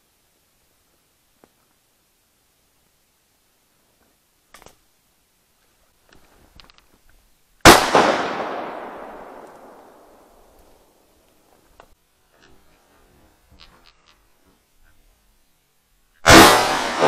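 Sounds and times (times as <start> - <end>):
shotgun shot: 7.6 - 10.0, 16.2 - 17.0.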